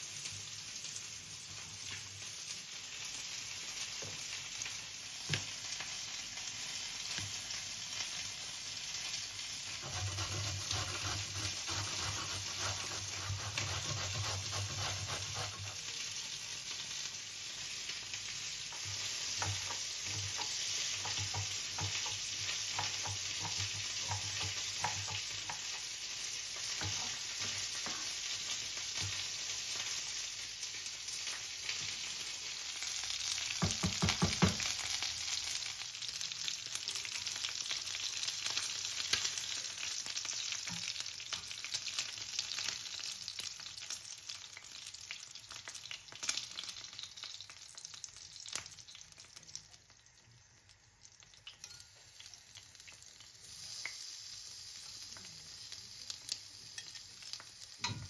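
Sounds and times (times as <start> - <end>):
food sizzling in a pan: 0.0 - 58.0
wooden spoon knocking a pan: 18.7 - 25.8, 33.5 - 34.8.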